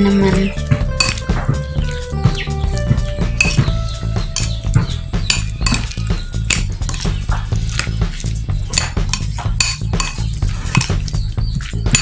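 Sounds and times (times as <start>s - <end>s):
background music: 0.0s - 12.0s
metal spoon scraping ceramic bowl: 5.2s - 11.1s.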